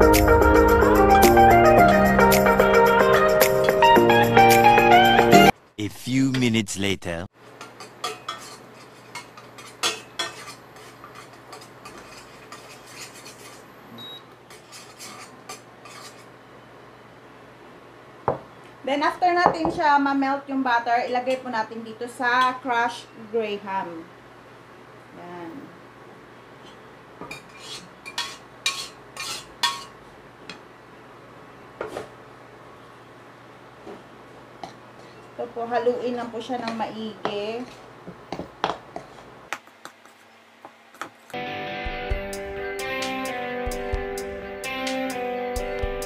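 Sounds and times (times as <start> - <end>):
spoon stirring in a pot: 7.6 - 13.7, 14.4 - 16.3, 26.7 - 29.9.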